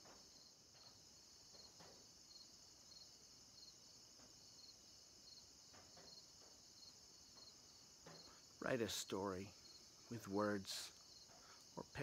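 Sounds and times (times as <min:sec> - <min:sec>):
insect chirp: 0:00.0 - 0:12.0
insects trilling: 0:00.0 - 0:12.0.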